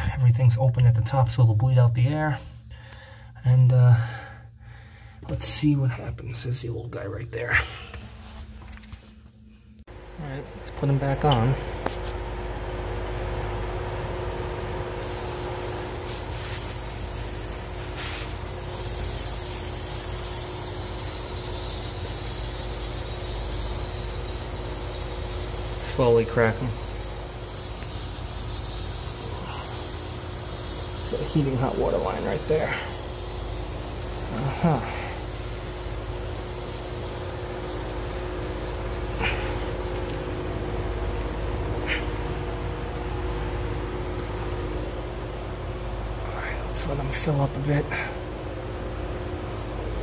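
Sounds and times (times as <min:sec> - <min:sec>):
low steady hum: 0:00.0 - 0:50.0
water rushing through a valve: 0:15.0 - 0:42.1.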